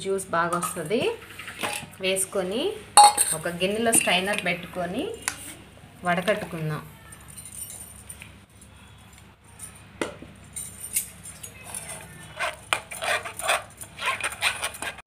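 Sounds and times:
wet squishing and scraping: 0:11.6 - 0:15.0.

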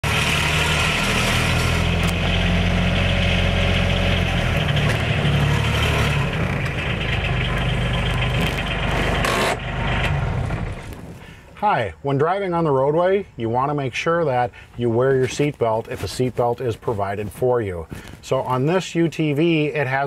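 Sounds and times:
diesel utility vehicle engine running: 0:00.0 - 0:11.6.

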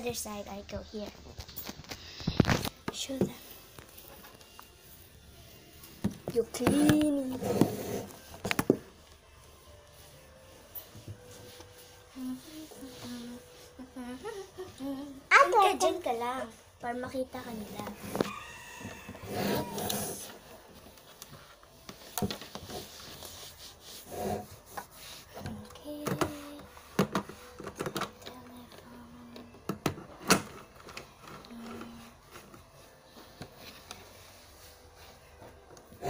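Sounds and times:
cloth wiping wooden tabletop: 0:22.7 - 0:25.5.

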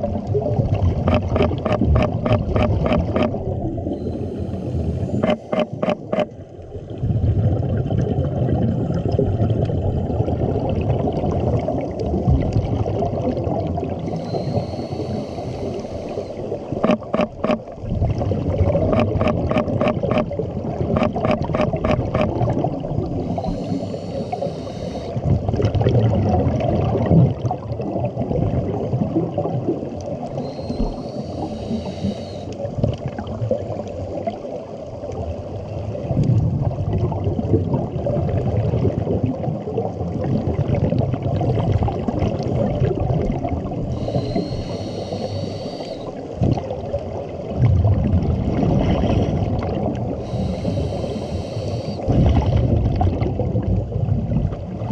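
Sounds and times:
exhaled bubbles gurgling: 0:00.0 - 0:54.9
low underwater rumble: 0:00.0 - 0:54.9
scuba regulator hissing inhales: 0:03.9 - 0:05.7, 0:14.1 - 0:16.6, 0:23.2 - 0:25.2, 0:30.3 - 0:32.6, 0:43.9 - 0:46.3, 0:50.2 - 0:52.1.

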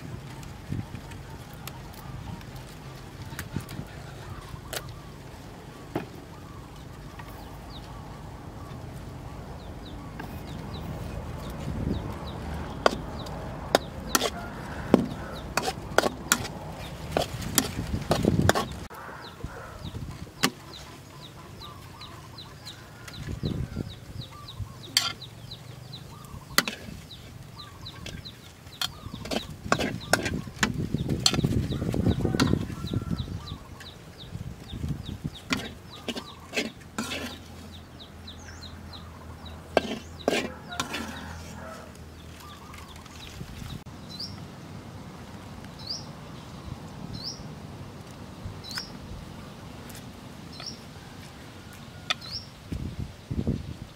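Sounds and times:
metal spatula clanking against wok: 0:24.8 - 0:25.3, 0:28.8 - 0:31.5, 0:35.5 - 0:37.4, 0:39.8 - 0:41.1.

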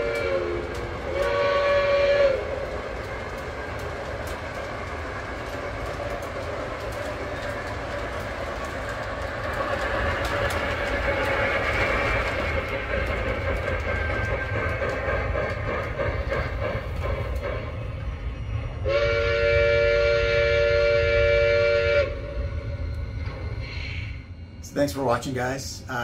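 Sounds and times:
steam whistle: 0:00.0 - 0:02.6, 0:18.8 - 0:22.4
model train rumbling on track: 0:00.0 - 0:26.0.

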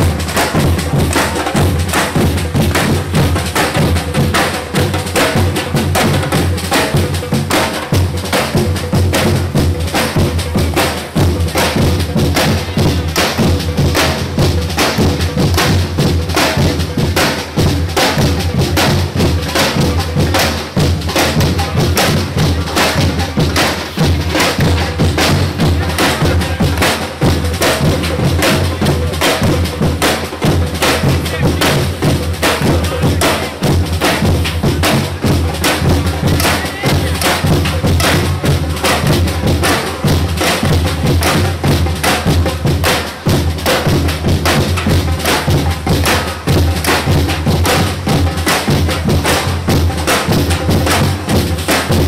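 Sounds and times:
samba drum section playing: 0:00.0 - 0:52.0.

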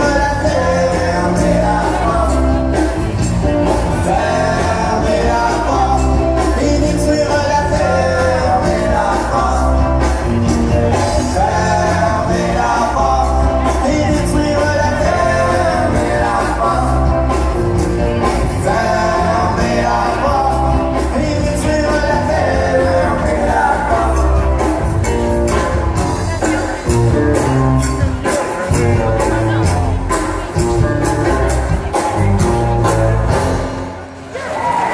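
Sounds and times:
person singing: 0:00.0 - 0:24.9
live country dance music: 0:00.0 - 0:34.9.

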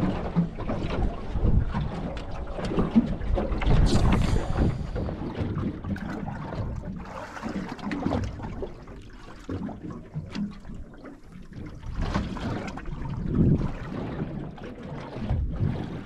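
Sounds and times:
low wind rumble: 0:00.0 - 0:07.3, 0:11.6 - 0:14.6
water lapping against boat hull: 0:00.0 - 0:16.0.

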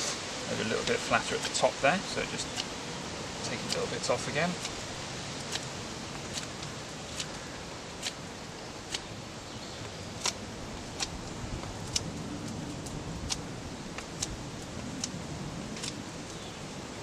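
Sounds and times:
knife shaving wooden stick: 0:02.4 - 0:02.8, 0:03.4 - 0:09.2, 0:09.8 - 0:16.0.

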